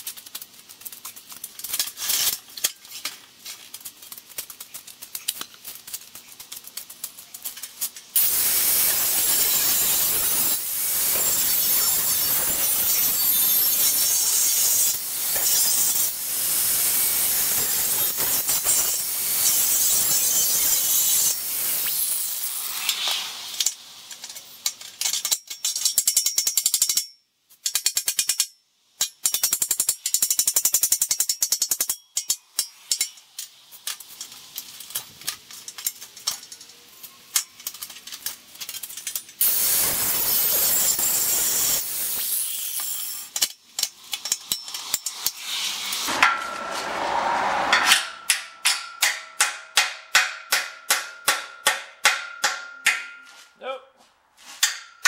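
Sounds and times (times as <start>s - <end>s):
angle grinder cutting steel: 8.2s - 23.7s, 39.4s - 43.4s, 44.1s - 49.0s
hammer striking ringing steel tube: 46.1s - 53.4s.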